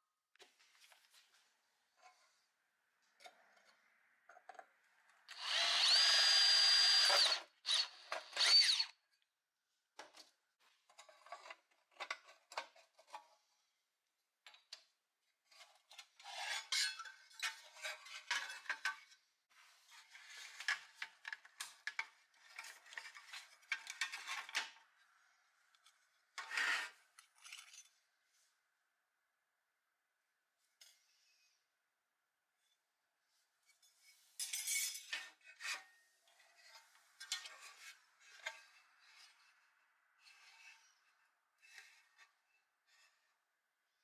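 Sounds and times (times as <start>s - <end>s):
sheet metal toy parts clinking: 34.4s - 35.4s.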